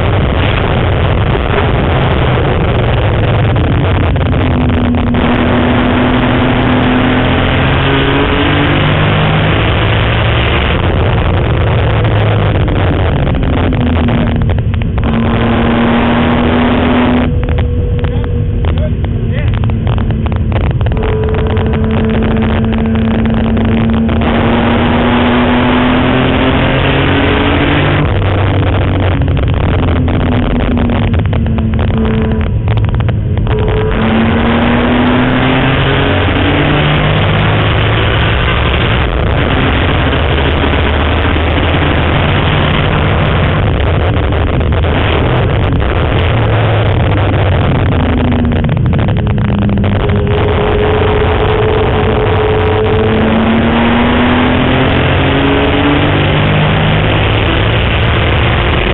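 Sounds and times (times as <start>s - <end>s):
car engine revving: 0.0s - 58.9s
road and wind noise: 0.0s - 58.9s.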